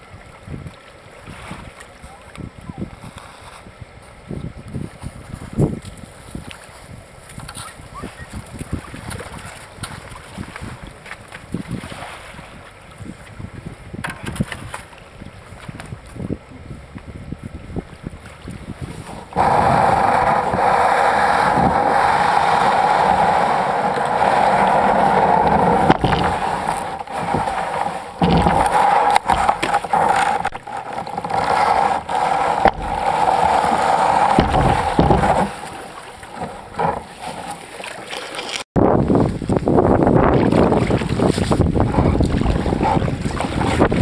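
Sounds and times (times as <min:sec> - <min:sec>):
kayak hull scraping over rock: 0:18.5 - 0:39.2, 0:40.1 - 0:44.0
knocks: 0:28.2 - 0:35.6.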